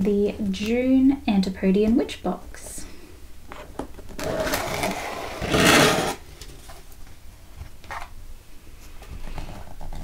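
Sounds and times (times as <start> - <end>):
cardboard box being opened: 4.2 - 6.8
cardboard scraping and rubbing: 4.2 - 6.9.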